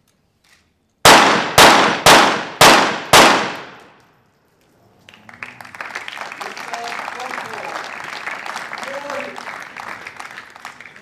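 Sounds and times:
pistol shots with echo: 1.0 - 4.0
people clapping: 5.0 - 11.0.

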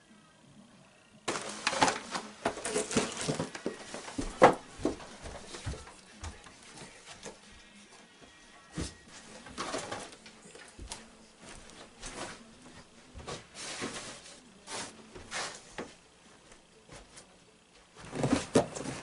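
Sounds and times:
duffel bag rustling: 1.3 - 4.2
footsteps: 1.3 - 7.6, 8.2 - 19.0.

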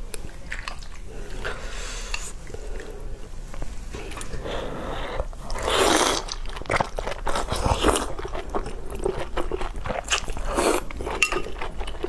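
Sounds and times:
crunchy wet chewing: 0.1 - 1.5, 5.2 - 12.0
person slurping broth: 1.1 - 3.0, 4.0 - 6.4, 10.4 - 10.9.

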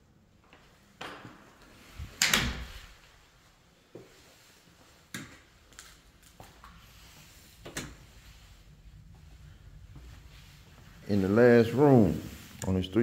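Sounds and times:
door shutting: 2.0 - 3.0.

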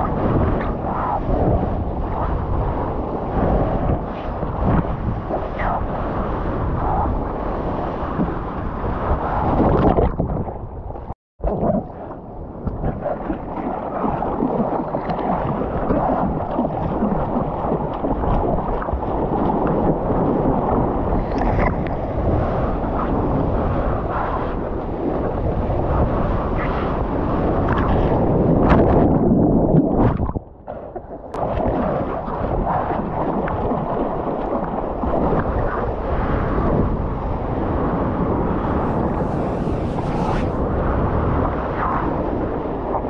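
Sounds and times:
wind buffeting microphone: 0.0 - 43.0
water splashing and sloshing: 8.0 - 23.2.

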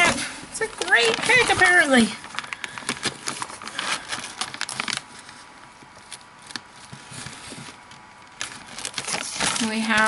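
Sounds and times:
paper pages rustling: 0.0 - 10.0.

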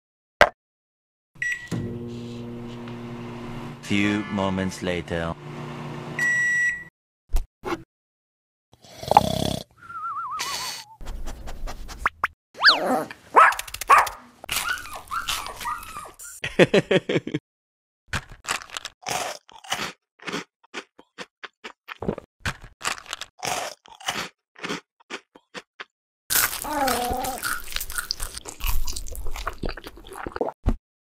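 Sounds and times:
crunching and chewing: 13.5 - 16.1, 18.2 - 30.6.

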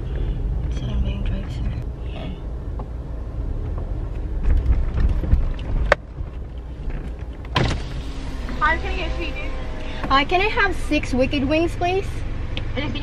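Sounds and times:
car cabin rumble: 0.0 - 13.0.

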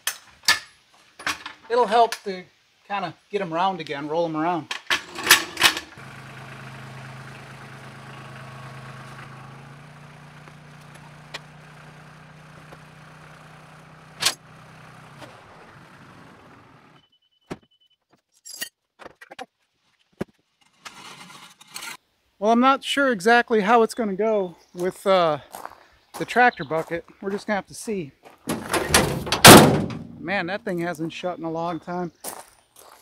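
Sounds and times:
tractor engine idling: 5.9 - 17.0.

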